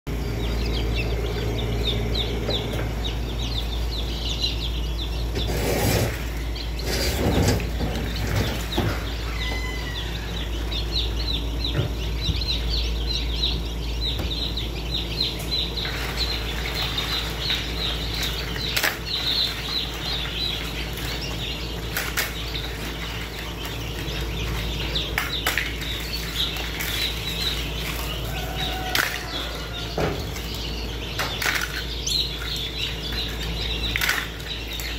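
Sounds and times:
chicks peeping: 0:00.1 - 0:34.9
steady low hum: 0:00.1 - 0:34.9
knocks and rustles: 0:05.3 - 0:09.8.

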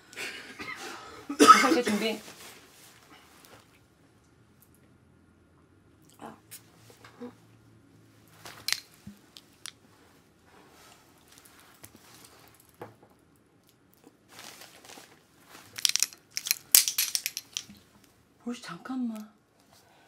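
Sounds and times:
soft rustling: 0:02.1 - 0:03.7, 0:08.1 - 0:12.8, 0:14.2 - 0:18.2.

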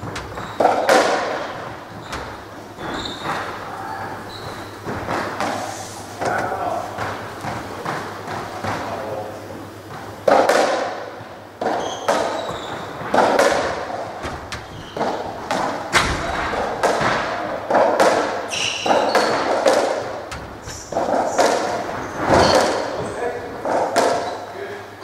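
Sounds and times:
shoe squeaks on wooden floor: 0:00.0 - 0:04.9, 0:11.6 - 0:13.0, 0:14.4 - 0:15.3, 0:18.5 - 0:19.6, 0:20.5 - 0:23.4
ball hitting rackets and walls: 0:00.0 - 0:24.5.

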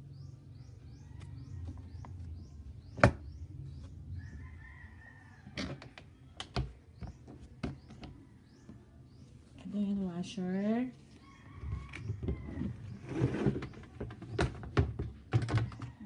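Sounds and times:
bird chirping: 0:00.0 - 0:09.9.

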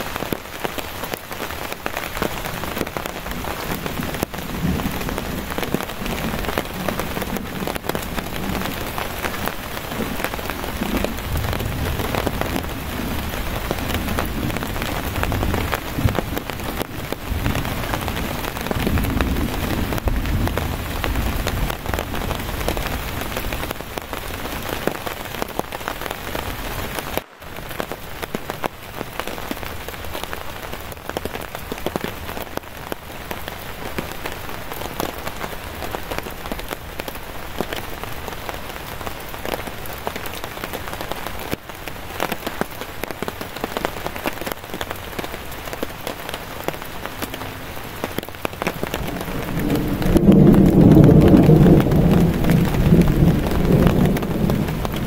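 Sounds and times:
heavy rain pattering on a tarp: 0:00.0 - 0:55.0
distant thunder rumbles: 0:02.2 - 0:24.4, 0:47.2 - 0:55.0.

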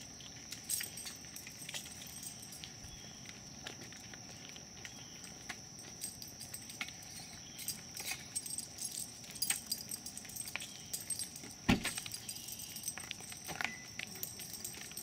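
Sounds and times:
metallic jingling and clinking: 0:00.5 - 0:03.2, 0:05.0 - 0:15.0.

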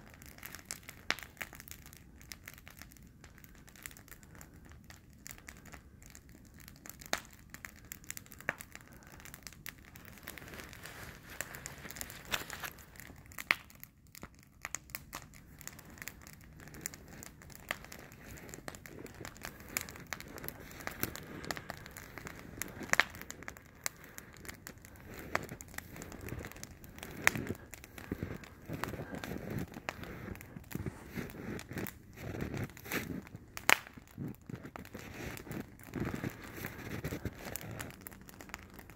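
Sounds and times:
campfire crackling: 0:00.0 - 0:38.9.

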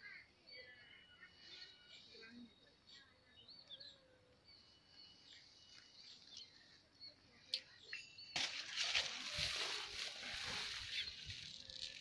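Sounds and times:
small birds chirping: 0:00.0 - 0:12.0
rustling of grass and nest: 0:08.3 - 0:12.0.

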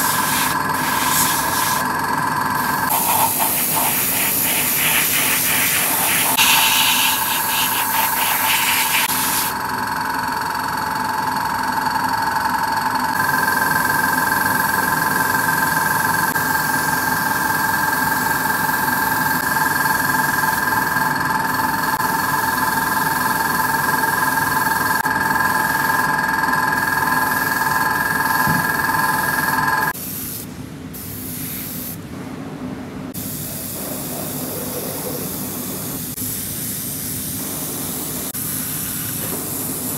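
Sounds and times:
airbrush air hiss: 0:00.0 - 0:01.8, 0:02.8 - 0:09.6, 0:29.9 - 0:32.0, 0:33.2 - 0:39.9.

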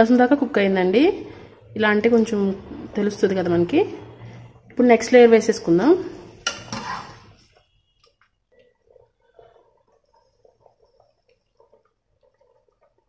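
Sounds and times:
wet squishes of rice: 0:07.4 - 0:13.0.

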